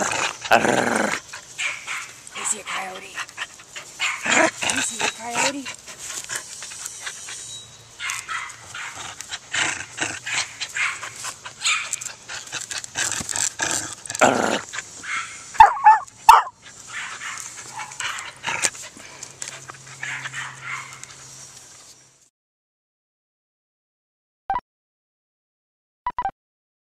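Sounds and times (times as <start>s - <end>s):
dog growling and breathing: 0.0s - 1.5s, 2.4s - 7.0s, 8.9s - 15.0s, 16.6s - 21.0s
dog barking: 1.6s - 3.0s, 8.0s - 9.0s, 10.8s - 11.0s, 15.1s - 18.3s, 20.0s - 21.0s.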